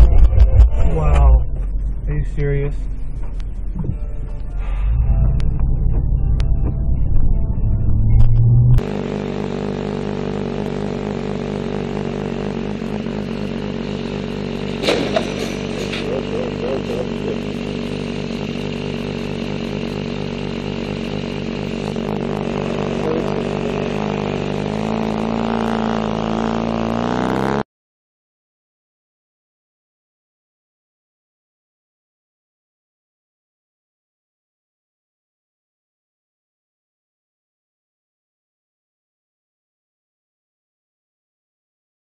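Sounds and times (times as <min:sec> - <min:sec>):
motorcycle engine running: 0:00.0 - 0:27.6.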